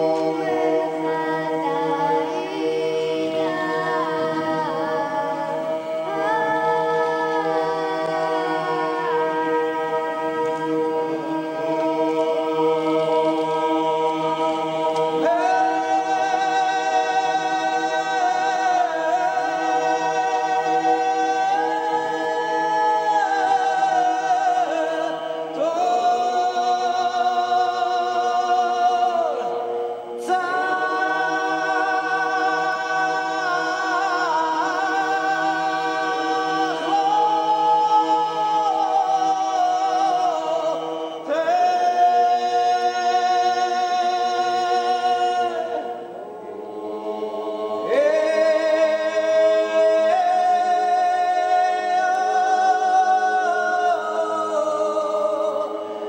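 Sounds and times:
choir holding a drone: 0:00.0 - 0:56.0
priest chanting melody: 0:00.0 - 0:56.0.

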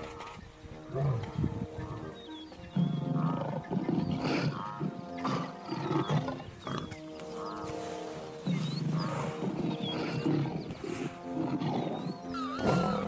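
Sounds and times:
background music with held tones: 0:00.0 - 0:13.0
lion growling and snarling: 0:02.8 - 0:07.0, 0:08.4 - 0:13.0.

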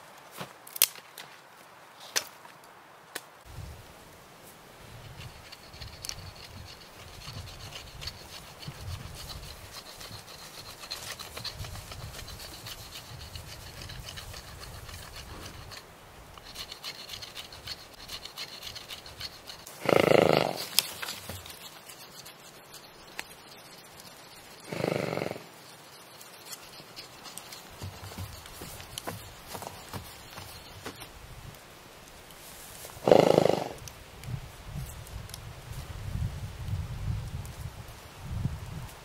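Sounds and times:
animal calling: 0:16.6 - 0:20.9, 0:23.6 - 0:25.5.

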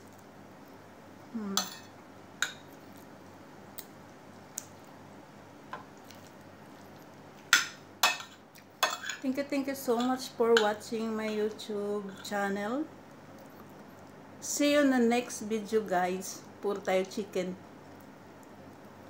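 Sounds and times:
cutlery clinking on a plate: 0:07.6 - 0:09.2.

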